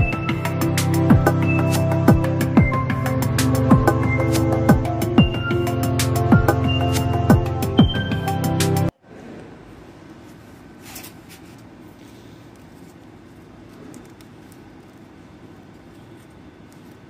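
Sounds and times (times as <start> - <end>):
background music: 0.0 - 8.9.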